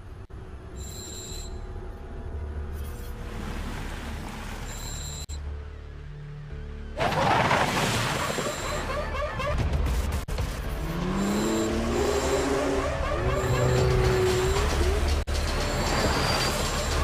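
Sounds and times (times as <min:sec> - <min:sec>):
low background music: 0:05.3 - 0:17.0.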